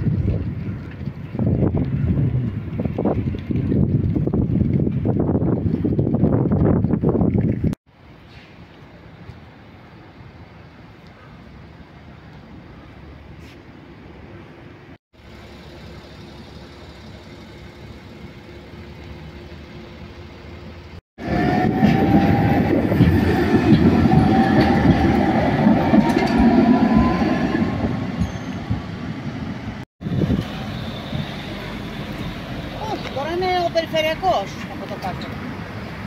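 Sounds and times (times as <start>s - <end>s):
tram wheels rumbling on rail: 0.0s - 7.8s, 15.2s - 36.0s
steady street hum: 0.0s - 36.0s
traffic noise: 7.9s - 36.0s
tram motor whine: 15.2s - 33.8s.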